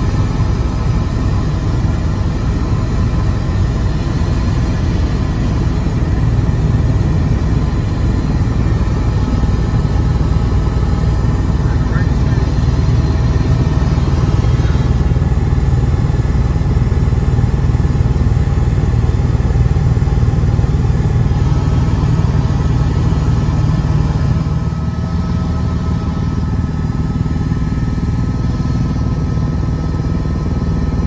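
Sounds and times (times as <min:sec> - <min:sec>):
helicopter engine and rotor drone: 0:00.0 - 0:31.0.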